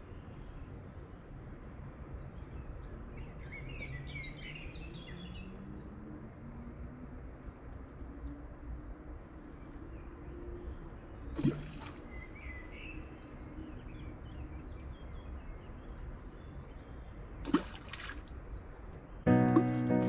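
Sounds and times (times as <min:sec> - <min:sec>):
objects plopping into water: 0:11.4 - 0:12.0, 0:17.4 - 0:18.3.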